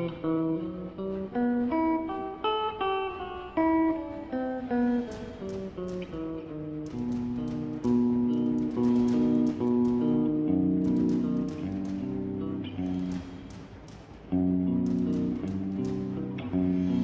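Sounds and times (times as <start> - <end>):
crisp taps: 4.7 - 17.0.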